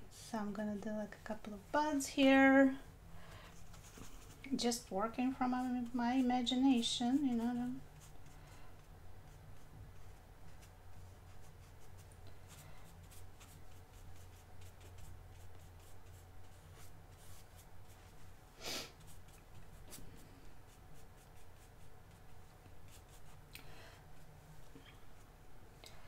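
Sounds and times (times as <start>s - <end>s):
low steady hum: 0.0s - 26.0s
paintbrush dabbing on paper: 3.5s - 18.3s, 19.0s - 23.5s.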